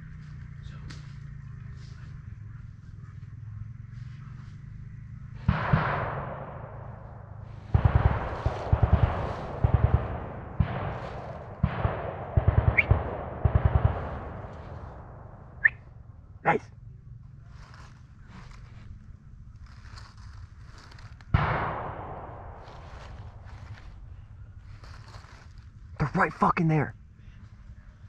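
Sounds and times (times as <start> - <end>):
automatic gunfire bursts: 5.5 - 15.6, 21.3 - 24.1.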